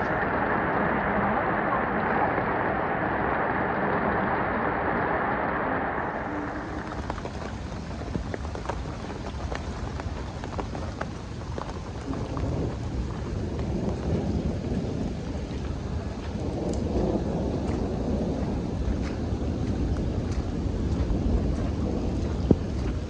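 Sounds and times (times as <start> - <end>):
light rain hissing: 0.0 - 23.0
low rumble: 0.0 - 23.0
raindrops ticking: 5.9 - 23.0.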